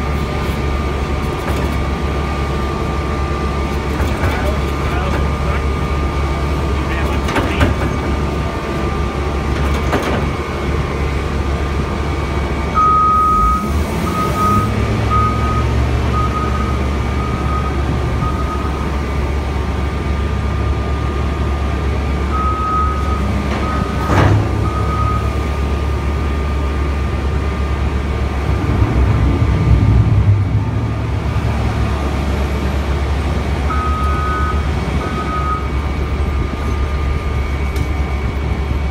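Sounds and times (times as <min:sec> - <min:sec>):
diesel engine revving: 0:00.0 - 0:38.9
reversing alarm beeping: 0:12.7 - 0:19.0, 0:22.3 - 0:25.4, 0:33.7 - 0:37.6.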